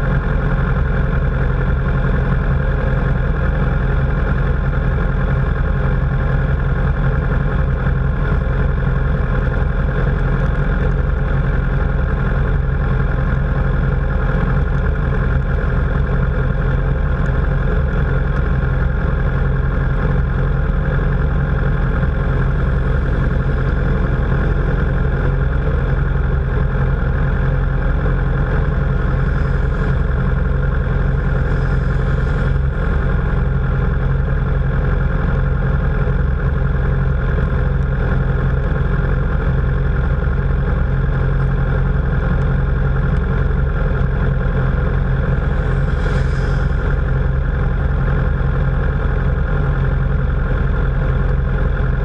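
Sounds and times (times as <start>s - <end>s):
motorcycle engines idling: 0.0s - 52.0s.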